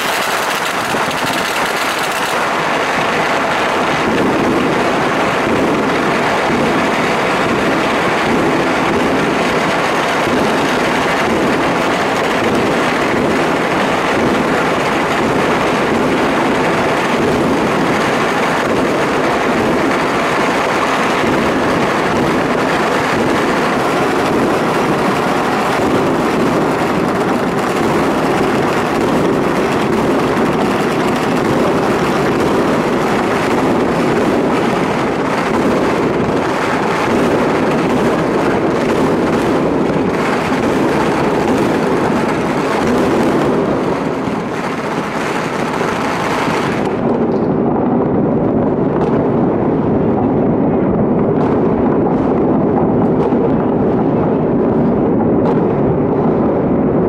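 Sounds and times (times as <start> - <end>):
dense firecracker crackling: 0.0 - 57.0.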